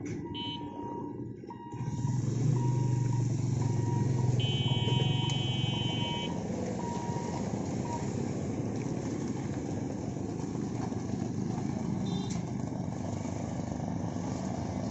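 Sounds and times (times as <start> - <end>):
beeper: 0.3 - 1.1, 3.6 - 6.4
vehicle horn: 0.4 - 0.8, 4.4 - 6.4, 12.0 - 12.5
motorcycle engines pulling away: 1.7 - 14.9.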